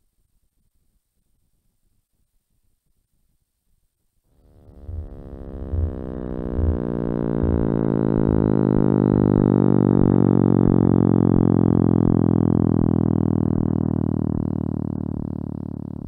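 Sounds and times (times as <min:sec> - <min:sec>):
low electronic pulse: 0:04.3 - 0:16.0
synthesizer drone: 0:04.4 - 0:16.0.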